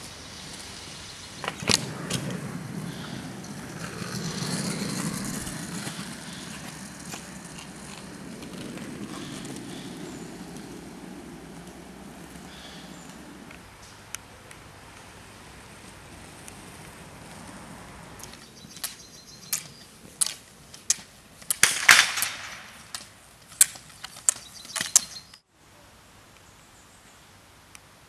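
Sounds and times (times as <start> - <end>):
steady hiss: 0.0 - 18.2
rollerski wheels rolling: 0.0 - 25.4
ski pole tips clicking on asphalt: 1.4 - 15.1, 17.8 - 25.4.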